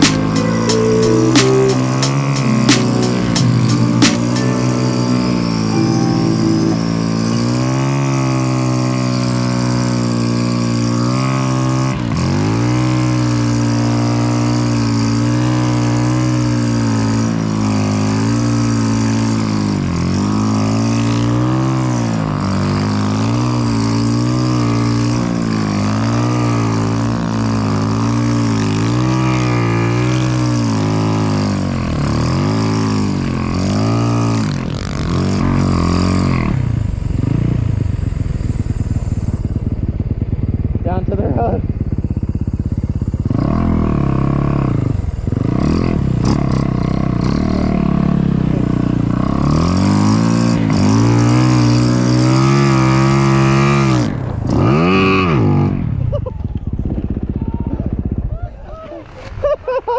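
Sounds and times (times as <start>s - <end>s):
vehicle engine at high revs: 7.6s - 58.2s.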